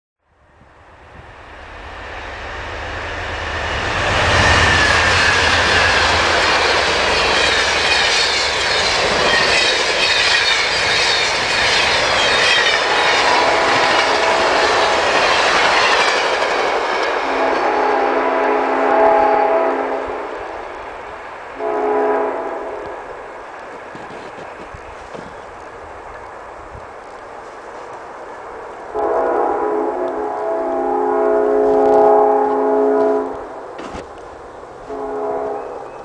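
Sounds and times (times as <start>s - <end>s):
wheels on rail rushing: 0.4s - 36.0s
train horn chord: 13.0s - 14.8s, 17.2s - 20.4s, 21.6s - 23.1s, 28.9s - 34.0s, 34.8s - 36.0s.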